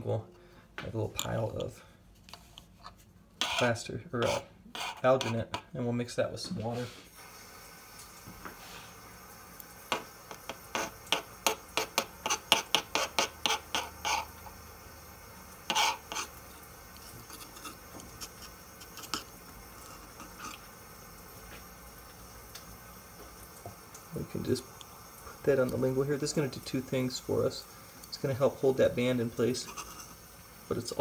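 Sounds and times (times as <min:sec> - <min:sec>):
spatula scraping countertop: 0:03.4 - 0:05.7, 0:09.9 - 0:14.6, 0:15.7 - 0:16.4, 0:17.0 - 0:20.7, 0:29.6 - 0:30.2.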